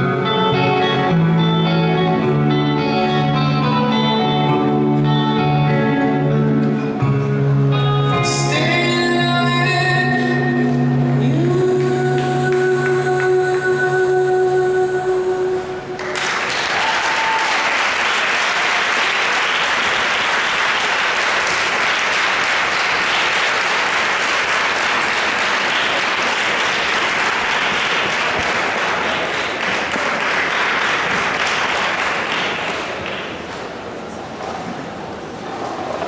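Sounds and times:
audience applause: 16.0s - 34.0s.

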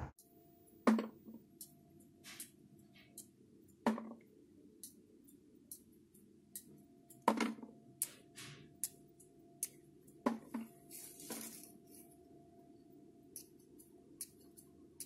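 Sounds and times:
plastic bag rustle: 10.8s - 12.0s.

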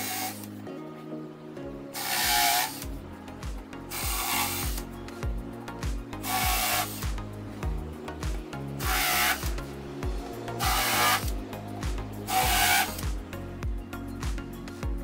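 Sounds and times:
cordless drill cutting: 0.0s - 0.5s, 2.0s - 2.9s, 3.9s - 4.9s, 6.2s - 7.0s, 8.8s - 9.6s, 10.6s - 11.4s, 12.3s - 13.0s
background music with steady beat: 0.0s - 15.0s.

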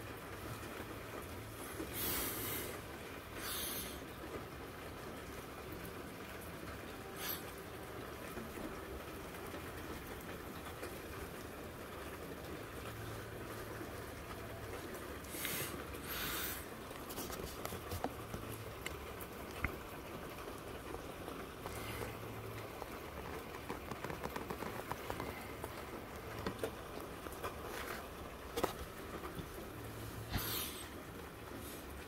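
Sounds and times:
rain heard through window: 0.0s - 32.0s
raindrop ticks: 0.0s - 32.0s.

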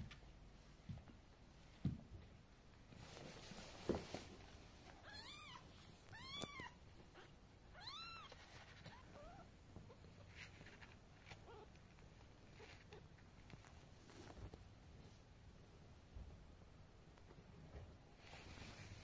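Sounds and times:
kitten meowing: 5.0s - 9.5s.

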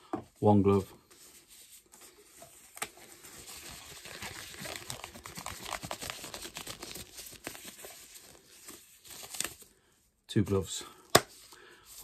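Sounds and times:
glove crinkling and rustling: 1.0s - 9.7s.

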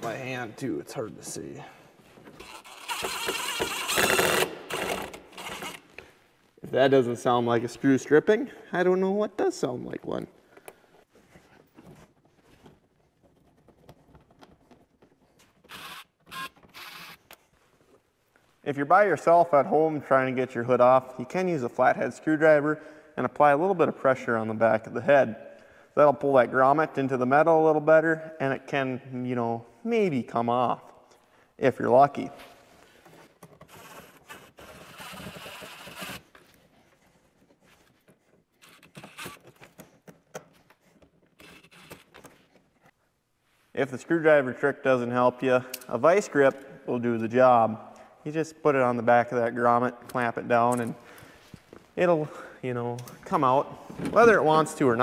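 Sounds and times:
cordless drill-driver running: 2.5s - 5.8s, 15.7s - 17.2s, 34.8s - 36.2s.

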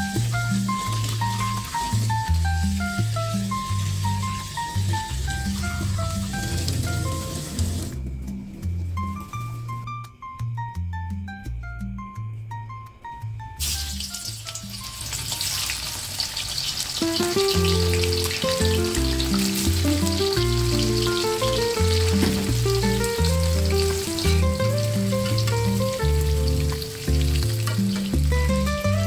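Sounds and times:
fish sizzling in hot oil: 0.0s - 7.9s, 13.6s - 29.0s
background music: 0.0s - 29.0s.

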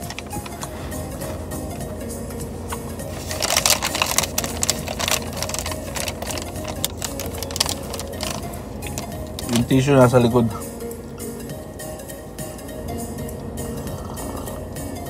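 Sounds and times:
paper bag crinkling: 0.0s - 1.4s, 3.1s - 9.7s.

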